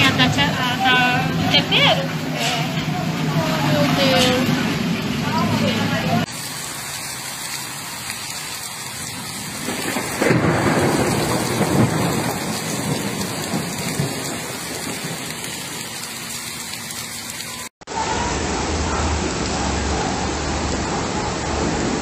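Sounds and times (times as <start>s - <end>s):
heavy rain pouring: 0.0s - 22.0s
low thunder rumble: 8.8s - 17.2s.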